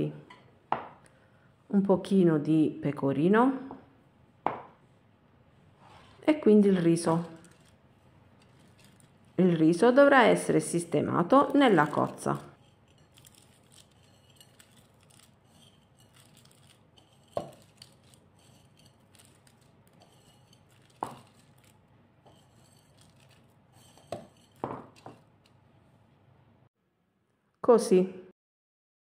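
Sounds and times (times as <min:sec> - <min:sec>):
patter of rice grains: 0:05.8 - 0:25.6.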